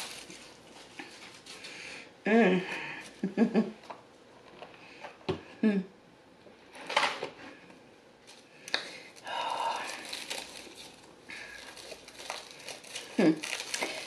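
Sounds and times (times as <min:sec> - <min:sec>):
crinkling: 0:00.0 - 0:01.8, 0:08.2 - 0:14.0.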